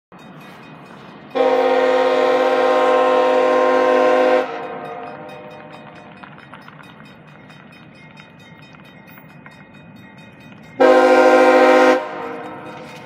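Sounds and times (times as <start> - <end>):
locomotive air horn blast: 1.4 - 5.3, 10.8 - 13.0.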